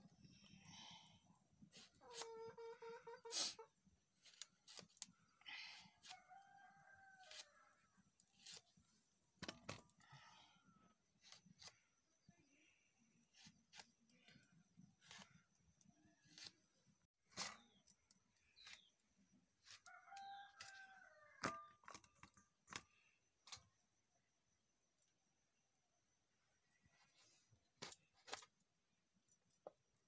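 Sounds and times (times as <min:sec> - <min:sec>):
faint rooster crowing: 0:05.8 - 0:08.2, 0:19.6 - 0:21.9.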